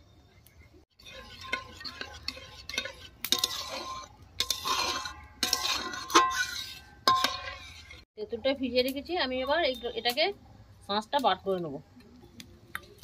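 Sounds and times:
metal spatula scraping a pan: 0.9s - 8.1s.

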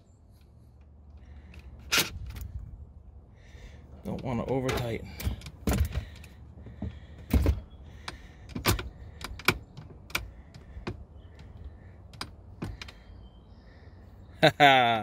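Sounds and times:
steering column tilt mechanism clicking: 4.0s - 13.0s.

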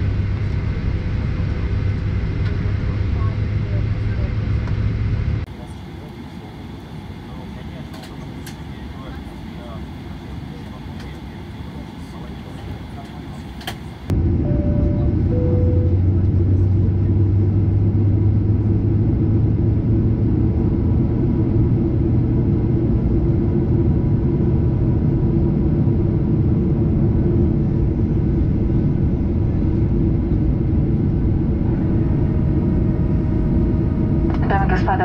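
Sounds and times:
deep hum: 0.0s - 5.5s, 14.1s - 35.0s
jet engines idling: 0.0s - 35.0s.

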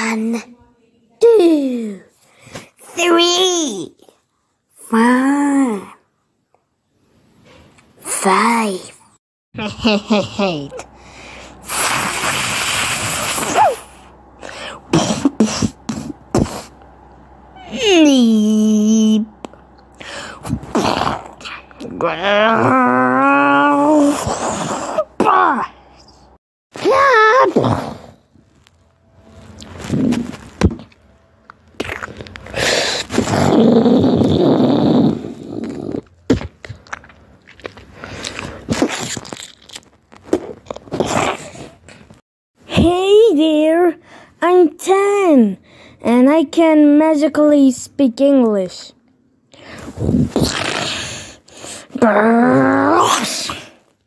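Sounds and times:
short vocal bursts: 11.0s - 16.8s
cartoon character hissing: 11.6s - 14.0s
cartoon crunching and scraping: 29.4s - 31.0s, 31.7s - 34.9s, 35.5s - 42.2s.

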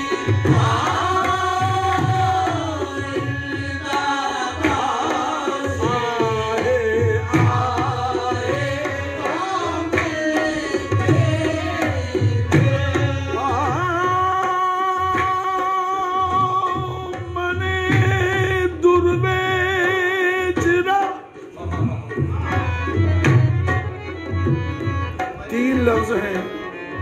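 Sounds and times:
man singing: 0.0s - 23.0s, 25.4s - 27.0s.

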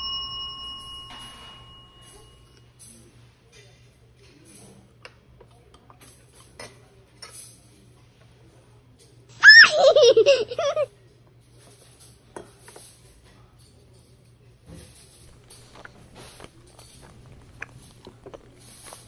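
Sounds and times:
child laughing and squealing: 9.4s - 10.9s
metal spoon clinking on dishes: 11.6s - 14.2s.

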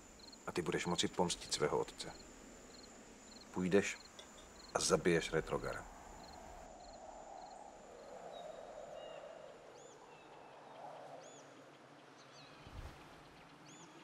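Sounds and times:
crickets chirping: 0.0s - 11.7s
soft rushing noise: 12.6s - 13.5s.

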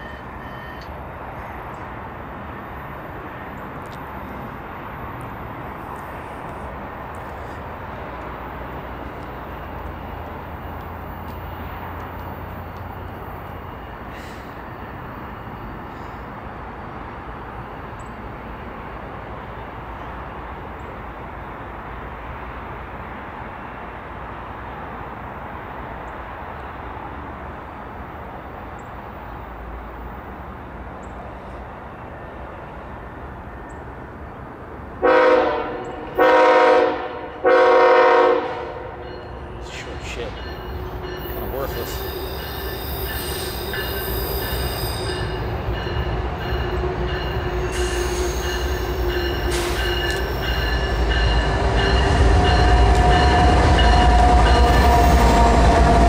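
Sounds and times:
locomotive air horn blasts: 35.0s - 39.0s, 46.6s - 50.5s, 52.5s - 56.0s.

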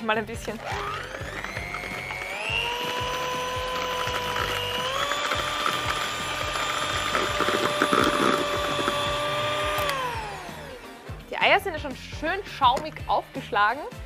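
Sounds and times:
electric hand mixer whine: 0.5s - 11.2s.

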